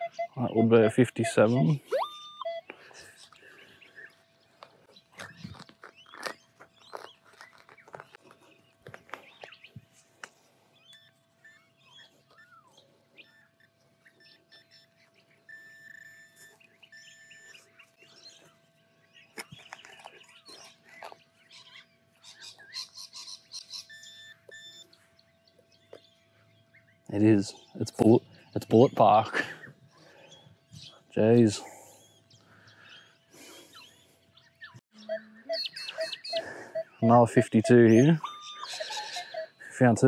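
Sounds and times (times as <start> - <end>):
held chirping tones: 0.0 - 3.4, 34.7 - 40.0
birds chirping: 0.0 - 40.0.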